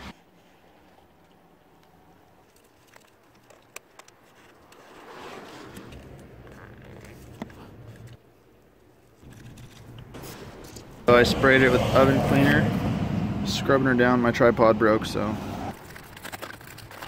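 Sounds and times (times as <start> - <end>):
rustling and scraping handling noise: 2.3 - 11.1, 15.7 - 17.0.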